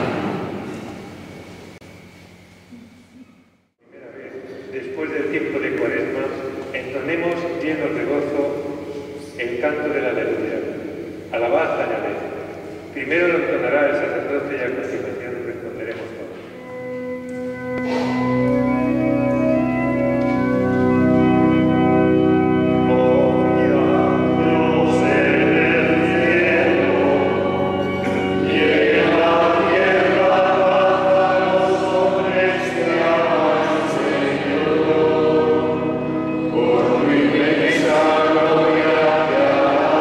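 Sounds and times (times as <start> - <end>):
congregation and choir singing: 0.0 - 1.4, 16.5 - 40.0
church organ chords: 0.0 - 40.0
priest intoning: 16.6 - 40.0.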